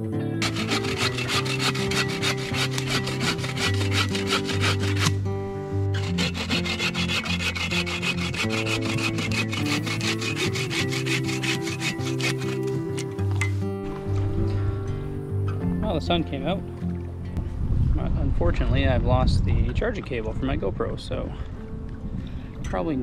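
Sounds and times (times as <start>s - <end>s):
background music: 0.0s - 17.6s
hand saw cutting wood: 0.4s - 5.2s, 5.9s - 13.2s.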